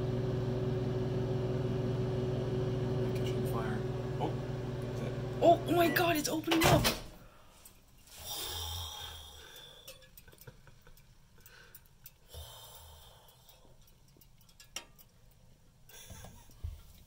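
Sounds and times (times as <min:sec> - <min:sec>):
person breathing softly: 0:07.2 - 0:10.0, 0:11.4 - 0:13.8.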